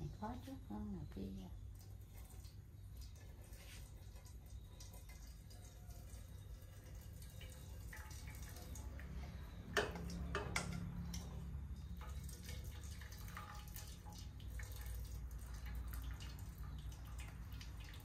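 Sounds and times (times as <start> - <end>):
liquid pouring into steel pot: 1.6 - 18.0.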